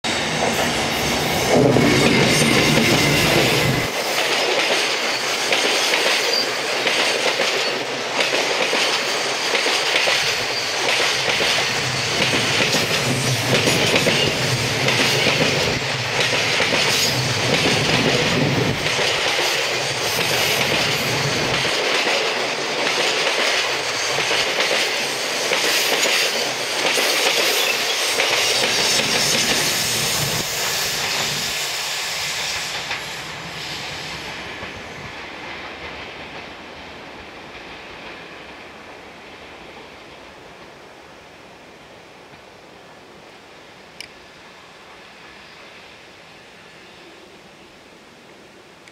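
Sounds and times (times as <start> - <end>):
train low rumble: 0.0 - 41.0
train wheels clickety-clack: 0.1 - 38.8.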